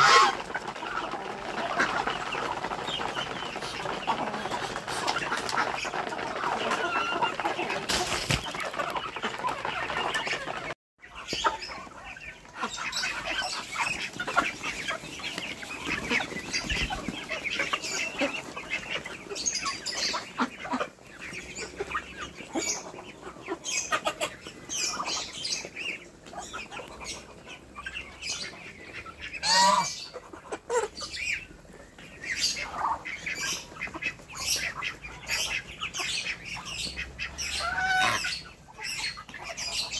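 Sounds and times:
wings flapping: 0:00.0 - 0:10.8, 0:12.6 - 0:20.5
chickens clucking: 0:00.0 - 0:39.9
pecking clicks and scrabbling: 0:00.2 - 0:10.8.

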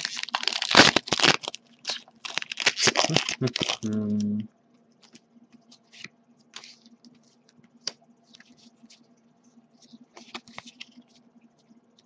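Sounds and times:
trading cards shuffling: 0:05.0 - 0:09.1, 0:09.7 - 0:12.0.

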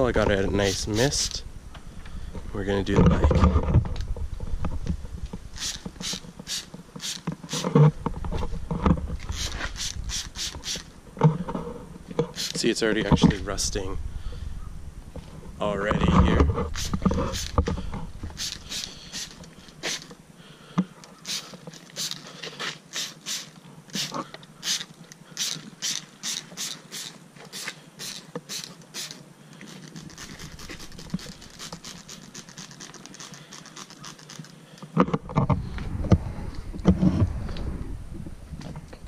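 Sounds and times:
spray bottle squirting: 0:00.6 - 0:01.4, 0:05.6 - 0:07.7, 0:09.3 - 0:10.9, 0:12.3 - 0:12.6, 0:16.7 - 0:17.6, 0:18.3 - 0:20.1, 0:21.2 - 0:34.4
low rumble: 0:13.2 - 0:16.6, 0:35.5 - 0:39.0.

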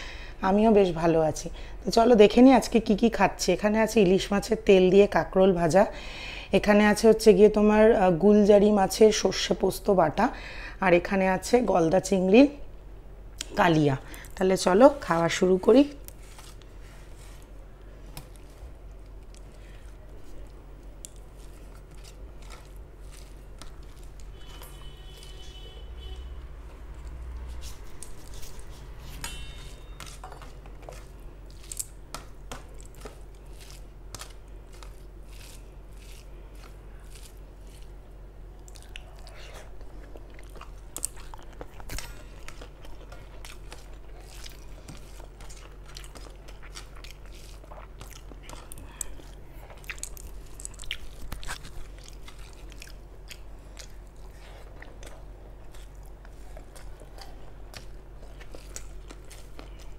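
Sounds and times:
steady low hum: 0:00.0 - 0:59.9
person chewing food: 0:16.0 - 0:59.9.

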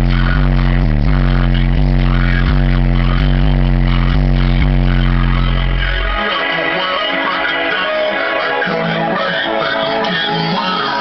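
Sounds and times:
bass-heavy music from subwoofers: 0:00.0 - 0:11.0.

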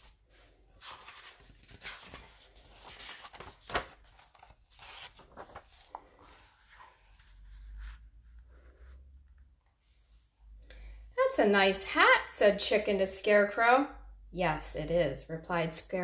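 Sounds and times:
book pages rustling: 0:00.0 - 0:10.3
sharp paper crack: 0:00.8 - 0:06.0.

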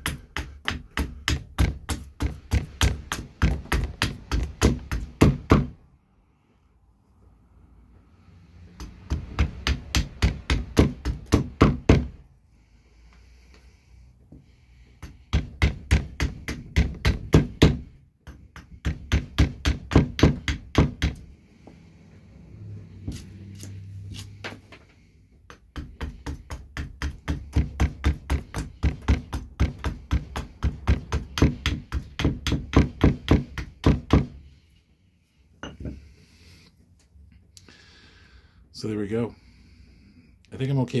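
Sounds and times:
axe chopping wood: 0:00.0 - 0:05.8, 0:08.8 - 0:12.2, 0:15.1 - 0:21.2, 0:25.5 - 0:34.4.

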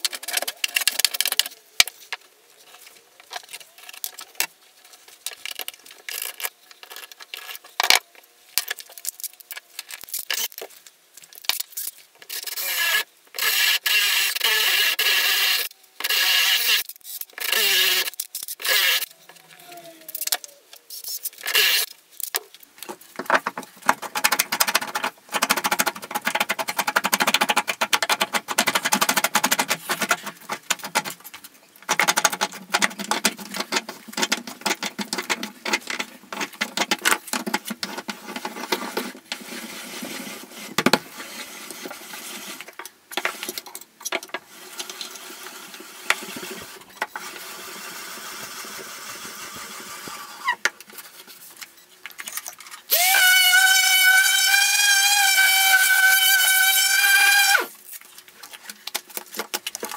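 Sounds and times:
metal rods clicking against wood: 0:23.3 - 0:38.1.

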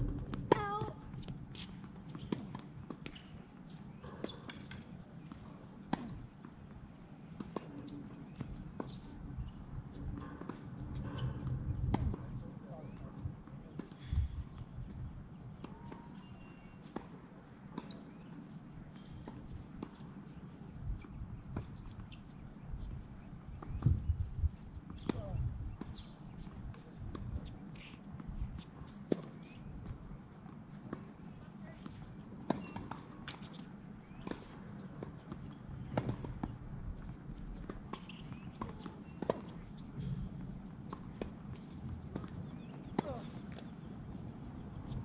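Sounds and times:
tennis balls popping and bouncing: 0:00.0 - 0:06.7, 0:24.7 - 0:45.0.

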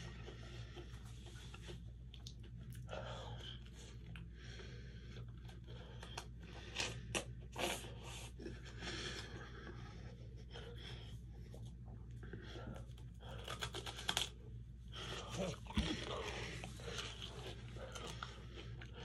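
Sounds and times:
steady low hum: 0:00.0 - 0:19.0
ice cream sandwich crunching: 0:12.9 - 0:19.0.

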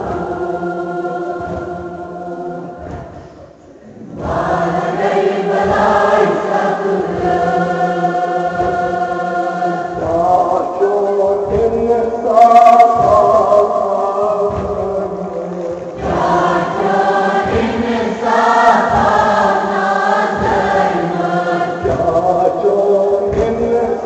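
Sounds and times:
voices singing a lament: 0:00.0 - 0:24.0.

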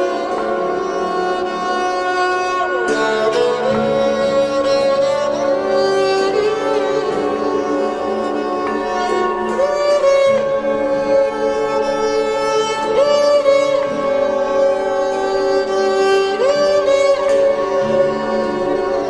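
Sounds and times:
string melody with held notes: 0:00.0 - 0:19.0.

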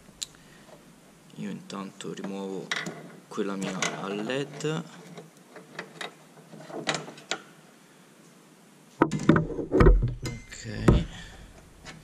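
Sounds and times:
knocks and thuds: 0:09.0 - 0:11.4.

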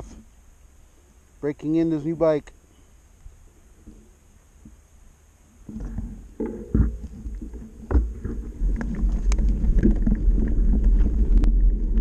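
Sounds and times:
wind rumble on microphone: 0:05.7 - 0:12.0.

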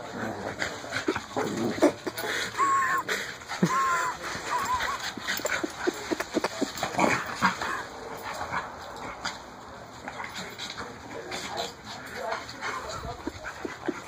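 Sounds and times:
dogs yipping and grunting: 0:00.0 - 0:09.4, 0:12.4 - 0:14.0
dogs whining: 0:02.1 - 0:06.6.

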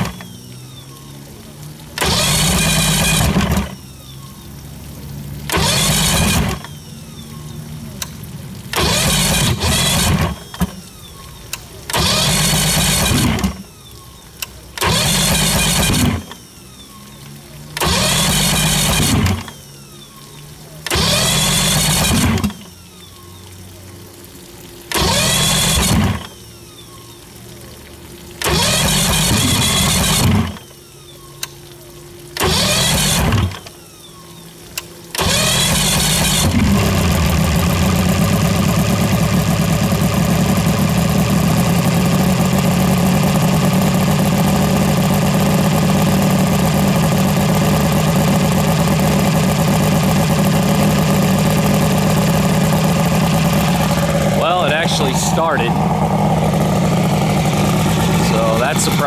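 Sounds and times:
outboard motor running unevenly: 0:00.0 - 0:59.0.

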